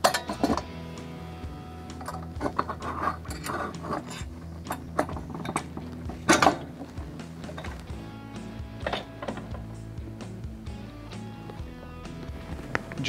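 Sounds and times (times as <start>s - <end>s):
hand tools clicking on metal: 0.0s - 0.7s, 1.9s - 8.0s
background music: 0.0s - 13.0s.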